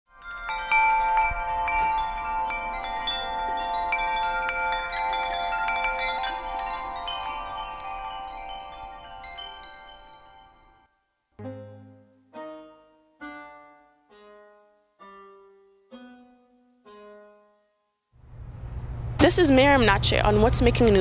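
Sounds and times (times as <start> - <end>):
shimmering chime music: 0.1 - 12.0.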